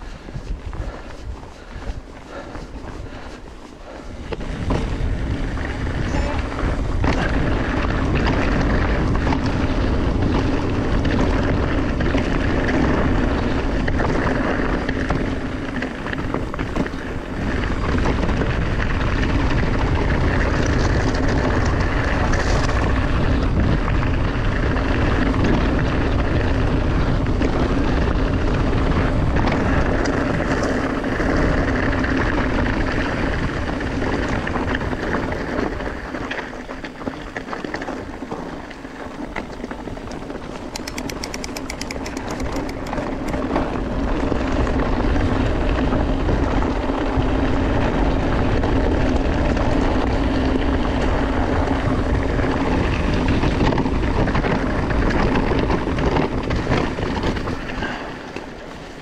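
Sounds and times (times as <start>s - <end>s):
bike tyres rolling: 0.0s - 59.0s
wind on microphone: 0.0s - 59.0s.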